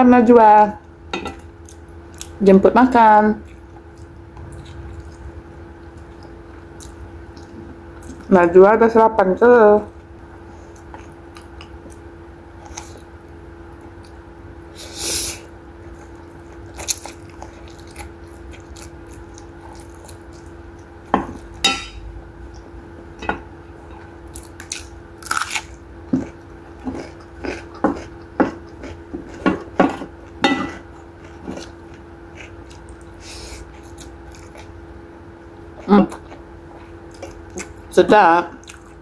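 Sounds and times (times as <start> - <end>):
faint steady hum: 0.0 - 39.0
wet chewing and crunching: 1.4 - 2.4, 3.4 - 8.3, 9.9 - 14.4, 15.8 - 21.6, 23.8 - 34.9, 35.7 - 37.9, 38.5 - 39.0.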